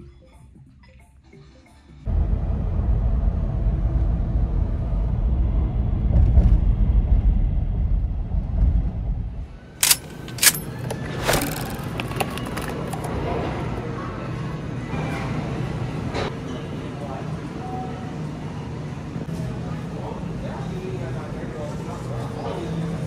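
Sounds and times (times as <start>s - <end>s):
vehicle rumble: 2.1s - 13.7s
sharp clicks: 9.8s - 12.7s.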